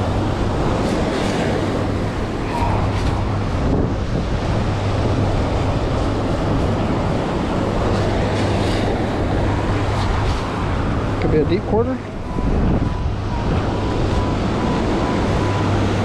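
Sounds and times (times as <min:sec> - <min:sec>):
surf rushing: 0:00.0 - 0:11.2
wind buffeting microphone: 0:00.0 - 0:16.0.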